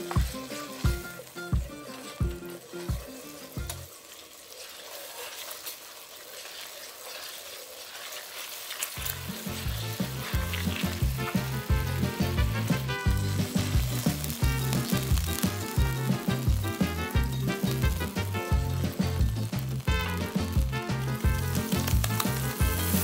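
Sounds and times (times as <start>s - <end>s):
music with bass beat: 0.0s - 3.9s, 9.0s - 23.0s
sauce sizzling and bubbling: 0.0s - 23.0s
wooden spoon stirring: 1.9s - 23.0s.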